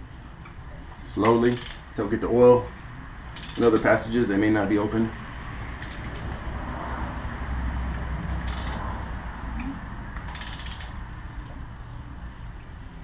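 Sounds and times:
low steady hum: 0:00.0 - 0:13.0
ratchet pawl clicking: 0:01.4 - 0:01.9, 0:03.4 - 0:03.9, 0:05.8 - 0:06.4, 0:08.4 - 0:09.0, 0:10.3 - 0:11.0.

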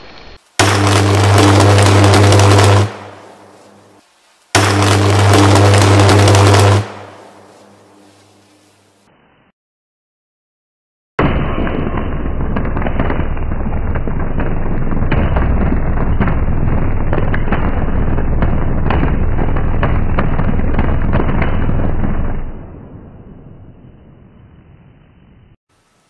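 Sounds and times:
crackling electrical arc: 0:00.0 - 0:09.1
steady low electrical hum: 0:00.6 - 0:09.2.

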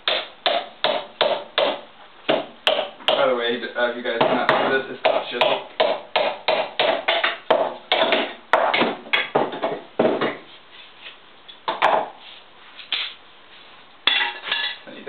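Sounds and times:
hammer pounding on wooden stick: 0:00.0 - 0:03.3, 0:04.2 - 0:10.4.

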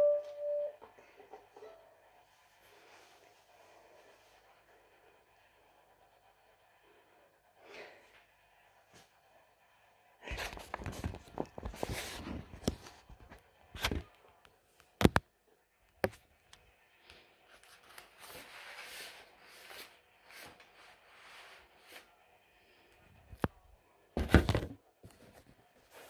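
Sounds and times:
rustling and handling noises: 0:10.2 - 0:15.2, 0:17.1 - 0:22.1, 0:24.2 - 0:26.0.

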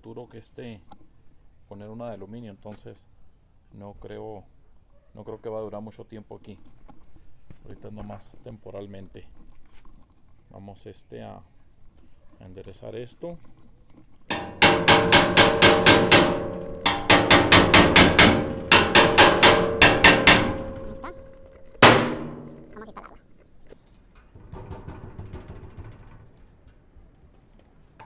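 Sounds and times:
hammer striking sheet metal: 0:14.3 - 0:22.8.

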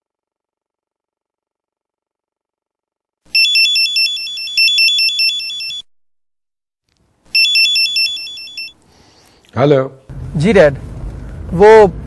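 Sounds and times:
mobile phone ringtone warble: 0:03.3 - 0:05.9, 0:07.3 - 0:08.8.

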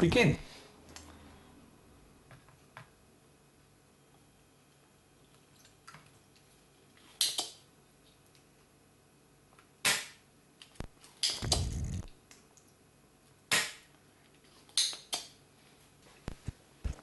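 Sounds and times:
solder sucker snapping: 0:11.3 - 0:12.1.

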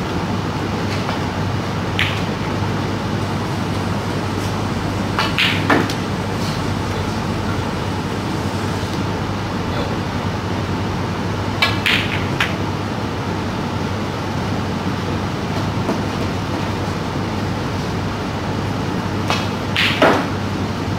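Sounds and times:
steady room hum: 0:00.0 - 0:20.9
cue tip striking ball: 0:01.9 - 0:07.6
snooker balls clicking: 0:01.9 - 0:07.6.

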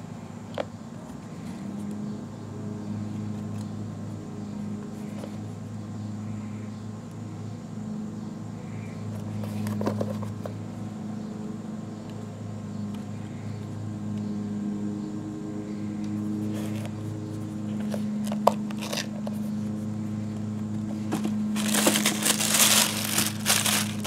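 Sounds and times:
low mechanical hum: 0:00.0 - 0:24.0
handling clicks and rustles: 0:09.1 - 0:10.6, 0:16.5 - 0:24.0.

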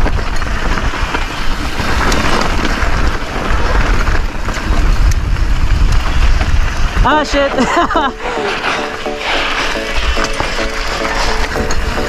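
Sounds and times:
bike clicking and rattling: 0:00.0 - 0:12.0
tyres rumbling on dirt and rocks: 0:00.0 - 0:12.0
wind buffeting microphone: 0:00.0 - 0:12.0.

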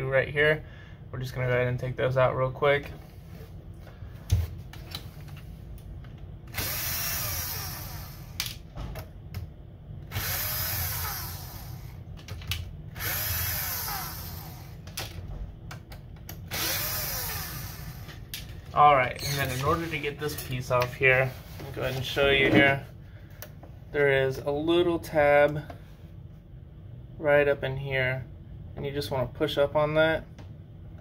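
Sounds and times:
electric screwdriver whining: 0:06.5 - 0:08.4, 0:10.1 - 0:11.9, 0:13.0 - 0:14.8, 0:16.5 - 0:18.1.

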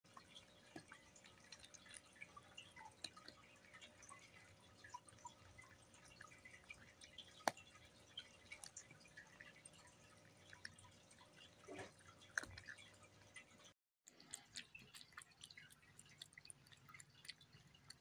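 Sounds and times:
cat crunching dry kibble: 0:10.4 - 0:13.2, 0:14.1 - 0:18.0.

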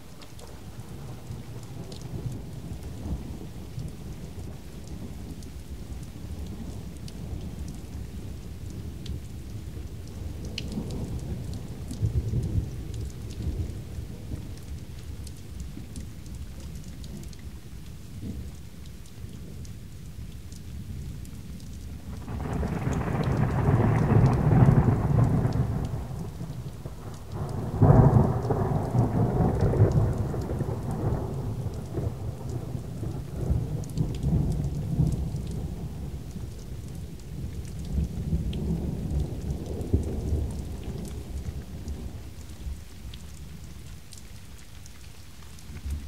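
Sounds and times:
rain falling steadily: 0:00.0 - 0:46.0
thunder clap: 0:22.2 - 0:26.6
thunder rolling: 0:22.2 - 0:26.6.

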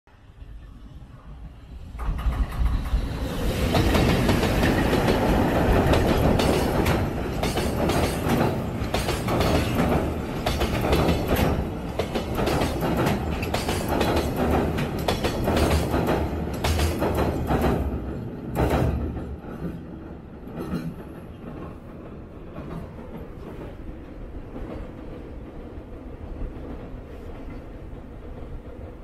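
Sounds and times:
freight train rumbling on bridge: 0:00.1 - 0:29.0
wheels clattering over rails: 0:02.0 - 0:23.7.

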